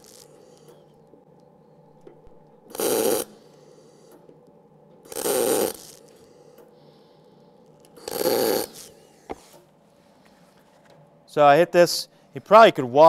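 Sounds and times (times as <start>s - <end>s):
welding arc crackling: 0.0s - 0.4s, 2.7s - 3.3s, 5.1s - 6.2s, 8.0s - 9.0s.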